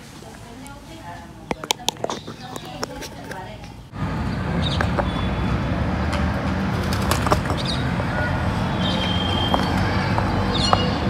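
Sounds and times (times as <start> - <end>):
whistled tone: 8.7 - 9.8
high bird chirps: 8.7 - 11.0.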